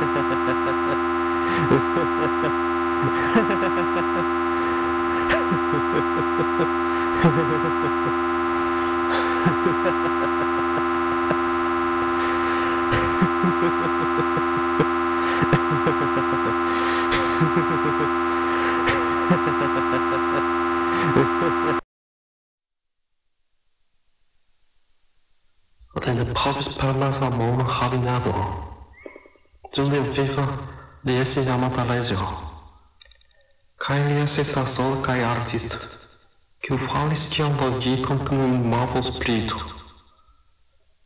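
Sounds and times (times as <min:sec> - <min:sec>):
drone of held tones: 0:00.0 - 0:21.8, 0:25.8 - 0:41.0
short squeaky blips: 0:28.9 - 0:29.4.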